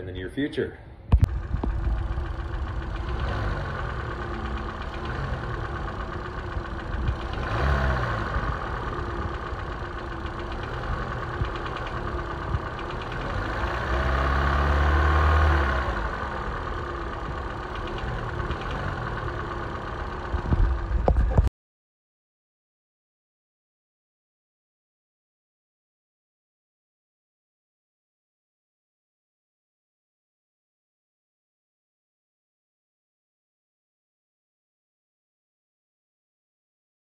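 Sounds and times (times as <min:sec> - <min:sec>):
car engine idling and revving: 0:01.1 - 0:21.5.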